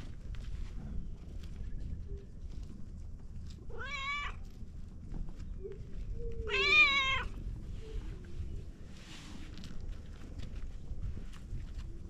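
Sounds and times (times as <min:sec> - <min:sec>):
cat meowing: 0:03.7 - 0:04.4, 0:06.4 - 0:07.4.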